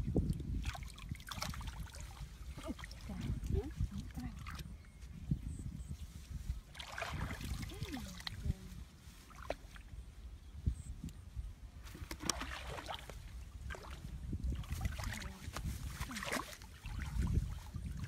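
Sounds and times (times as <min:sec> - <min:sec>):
water splashes and knocks: 0:00.0 - 0:04.7, 0:06.7 - 0:08.5, 0:11.9 - 0:18.0
hands sloshing in muddy water: 0:00.2 - 0:04.8, 0:06.3 - 0:10.0, 0:11.8 - 0:18.0.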